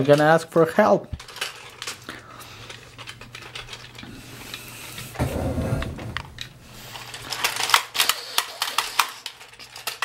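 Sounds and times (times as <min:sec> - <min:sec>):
plastic toy parts clicking: 0:01.2 - 0:02.1, 0:07.0 - 0:10.0
dull thump: 0:05.2 - 0:06.5.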